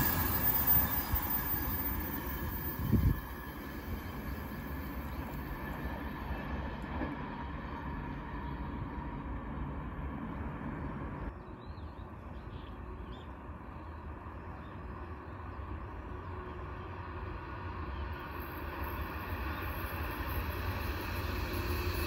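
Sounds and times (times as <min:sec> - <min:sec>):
approaching train: 0:00.0 - 0:22.0
wind on microphone: 0:02.4 - 0:03.4.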